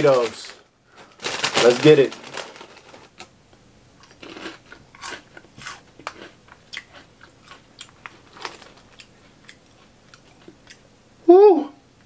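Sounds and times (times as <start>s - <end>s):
person chewing crunchy snacks: 4.0s - 10.8s.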